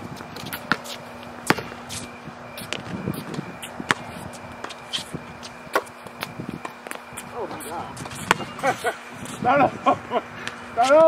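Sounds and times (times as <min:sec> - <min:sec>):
steady low hum: 0:00.0 - 0:11.0
light footsteps: 0:00.1 - 0:09.5
basketball bouncing: 0:00.2 - 0:02.0, 0:02.6 - 0:04.8, 0:08.0 - 0:08.7.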